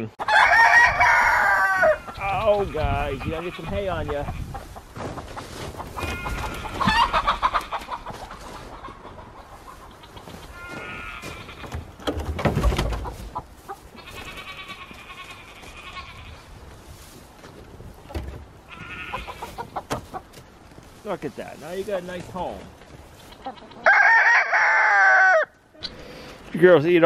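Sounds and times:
chickens clucking and squawking: 0:00.0 - 0:20.8, 0:21.8 - 0:26.3
hay rustling: 0:02.5 - 0:11.6, 0:13.0 - 0:23.6.

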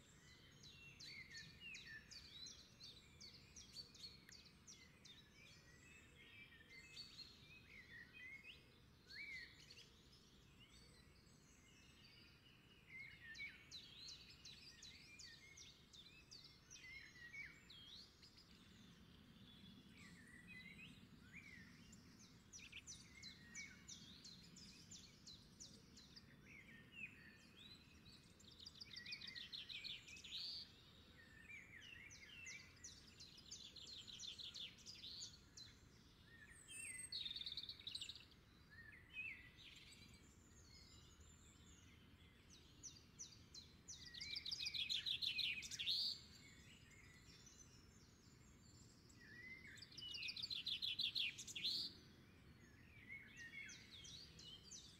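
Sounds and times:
wild birds chirping and trilling: 0:00.0 - 0:54.9.

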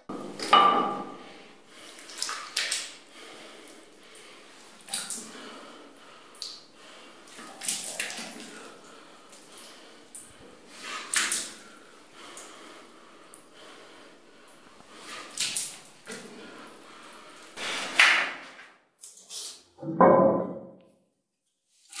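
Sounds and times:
water splashes: 0:01.8 - 0:06.6, 0:07.3 - 0:18.0.

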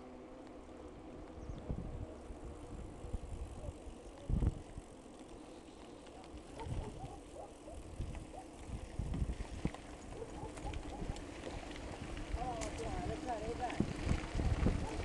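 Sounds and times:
bike tyres rumbling on gravel: 0:00.0 - 0:15.0
wind on microphone: 0:01.4 - 0:04.9, 0:06.5 - 0:15.0
bike knocking and rattling: 0:04.1 - 0:15.0.

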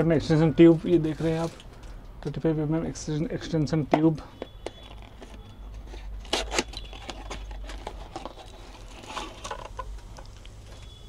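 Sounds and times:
packaging crinkling: 0:04.6 - 0:11.0.

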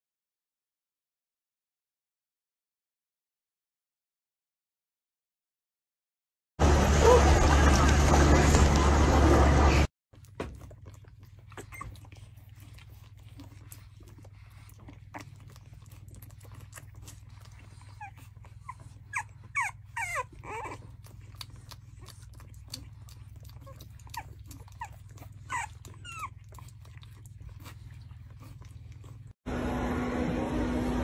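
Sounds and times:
puppy sucking wet clicks: 0:10.2 - 0:19.3, 0:20.0 - 0:29.3
puppies squeaking and whimpering: 0:10.5 - 0:29.3.

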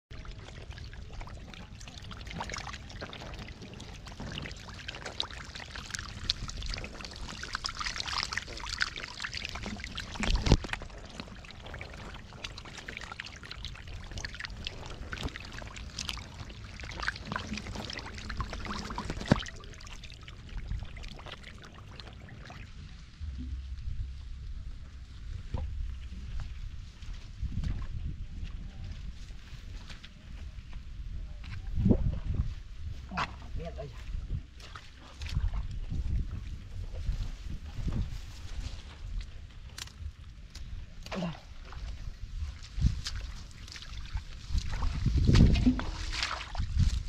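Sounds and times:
shallow water splashing: 0:00.1 - 0:27.8, 0:34.4 - 0:47.0
loud water splashes: 0:00.4 - 0:24.2, 0:42.8 - 0:47.0.

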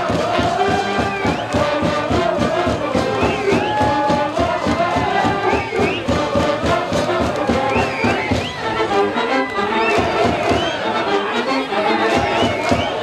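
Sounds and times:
steady drumbeat: 0:00.0 - 0:08.9, 0:09.7 - 0:10.8, 0:12.0 - 0:13.0
brass band playing: 0:00.0 - 0:13.0
crowd shouting along: 0:00.0 - 0:13.0.

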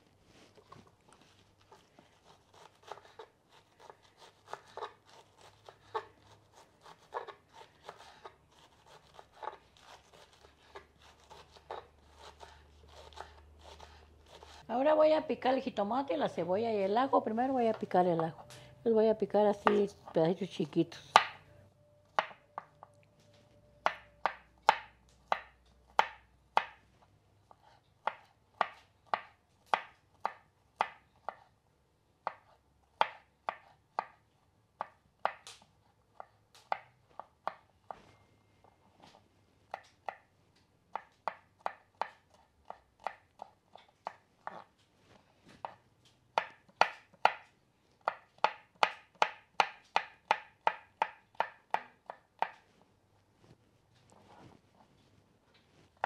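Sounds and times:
knife chopping on wooden board: 0:21.1 - 0:21.4, 0:23.8 - 0:26.8, 0:32.2 - 0:34.2, 0:40.9 - 0:44.6, 0:46.4 - 0:52.6.

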